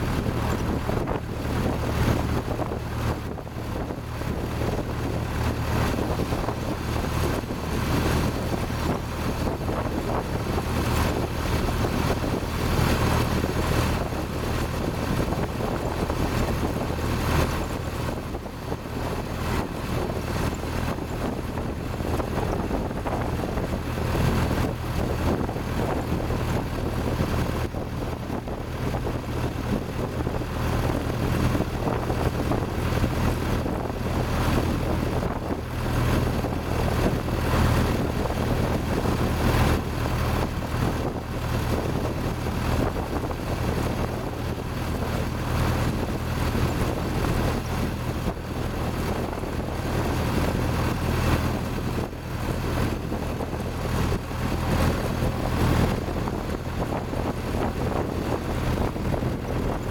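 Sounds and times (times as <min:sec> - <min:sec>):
car engine droning: 0:00.0 - 0:59.9
wind and road noise: 0:00.0 - 0:59.9.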